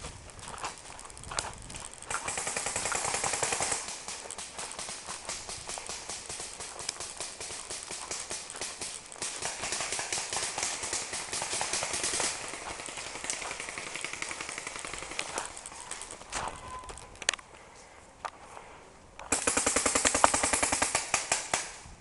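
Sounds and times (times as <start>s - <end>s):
footsteps running through dry leaves: 0.0s - 17.1s
paintball markers firing: 2.1s - 17.4s, 19.2s - 21.9s.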